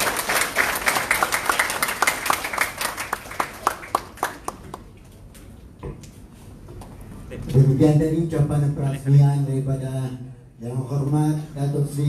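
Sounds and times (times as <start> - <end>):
audience applause: 0.0 - 4.9.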